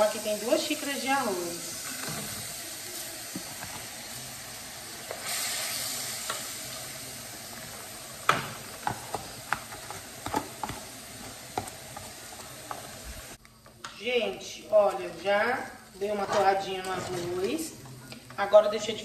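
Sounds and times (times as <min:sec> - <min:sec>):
rice sizzling in hot oil: 0:00.0 - 0:19.0
wooden spoon knocking on pan: 0:11.5 - 0:12.1.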